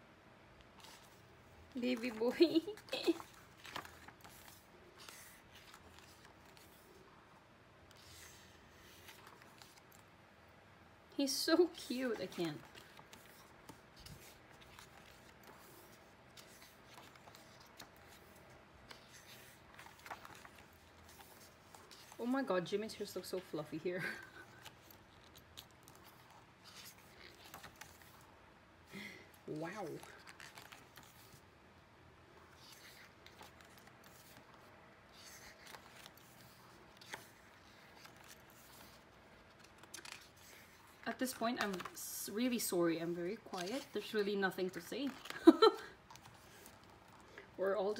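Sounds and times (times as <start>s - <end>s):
book pages being turned: 0.6s - 10.1s, 11.5s - 28.4s, 29.4s - 31.5s, 32.3s - 47.9s.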